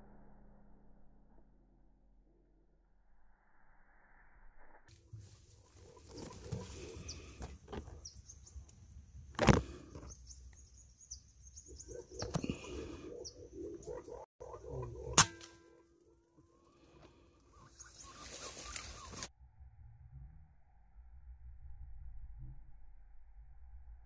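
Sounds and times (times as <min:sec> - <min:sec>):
birds chirping: 0:05.2 - 0:15.2, 0:16.6 - 0:19.3.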